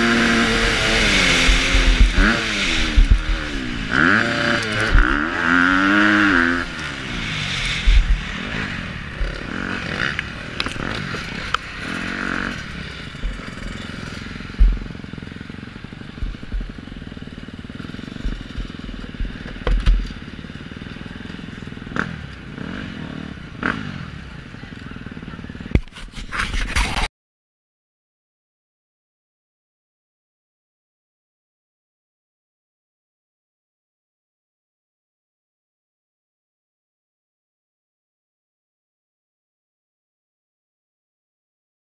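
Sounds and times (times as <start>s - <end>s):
motorcycle engine revving: 0.0s - 27.1s
low thuds: 7.7s - 8.5s, 14.5s - 15.0s, 16.2s - 16.8s.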